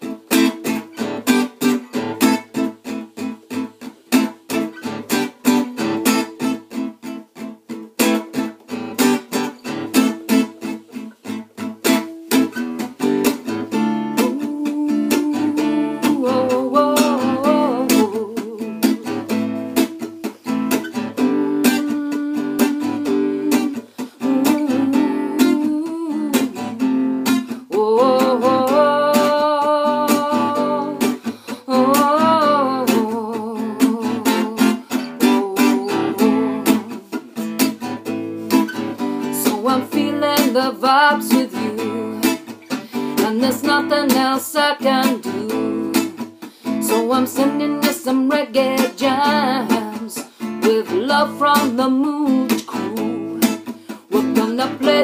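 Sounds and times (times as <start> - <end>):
acoustic guitar strumming: 0.0 - 55.0
person singing: 13.0 - 37.8, 38.5 - 55.0.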